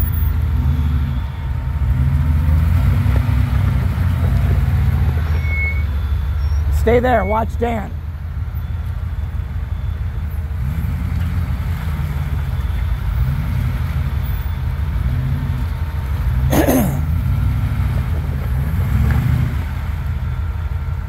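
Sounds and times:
off-road engine revving under load: 0:00.0 - 0:07.7, 0:10.2 - 0:21.0.

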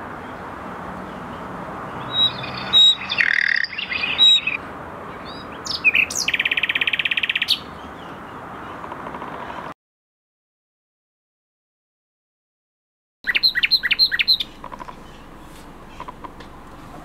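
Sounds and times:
nightingale singing: 0:01.1 - 0:09.4, 0:13.2 - 0:17.0.

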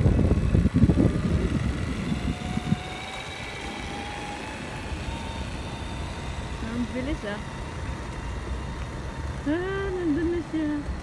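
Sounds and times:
wind rumble on microphone: 0:00.0 - 0:07.8
toy truck electric motor whining: 0:00.0 - 0:11.0.

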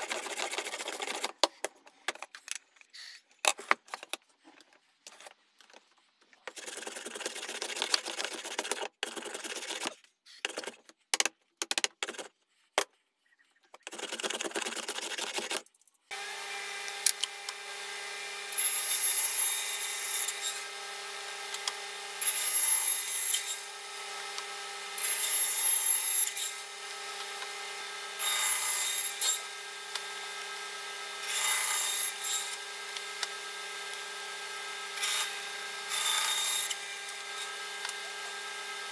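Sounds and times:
bandsaw rasping through wood: 0:00.0 - 0:01.4, 0:06.5 - 0:10.8, 0:13.8 - 0:38.9
rubbing and scraping on wood: 0:00.0 - 0:11.1, 0:11.8 - 0:15.9
bandsaw humming: 0:16.1 - 0:38.9.

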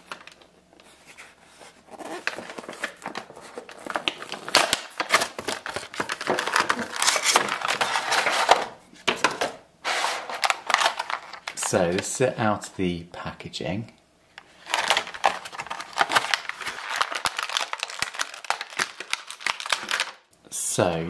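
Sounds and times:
plastic tray crinkling: 0:00.0 - 0:12.1, 0:14.6 - 0:20.3
cardboard box tearing: 0:01.8 - 0:03.0.

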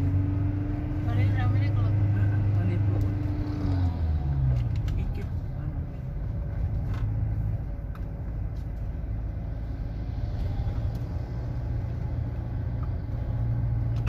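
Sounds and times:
car engine and tyre noise: 0:00.0 - 0:14.0.

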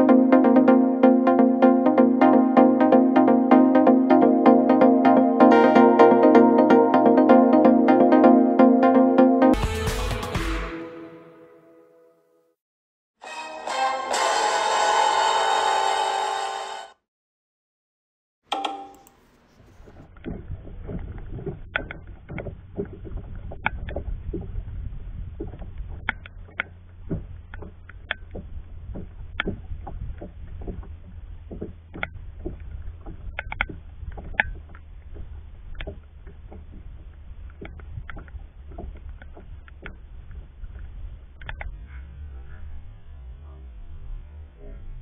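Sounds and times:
waves slapping against kayak hull: 0:19.8 - 0:41.6
steady low rumble: 0:20.0 - 0:45.0.

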